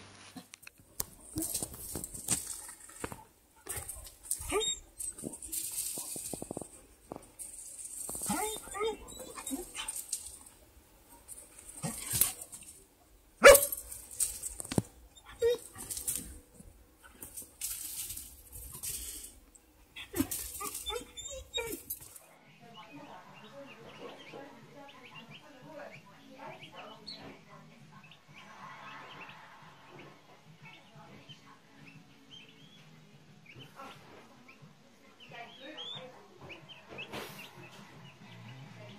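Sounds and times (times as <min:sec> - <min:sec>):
dog barking: 0:13.4 - 0:13.9.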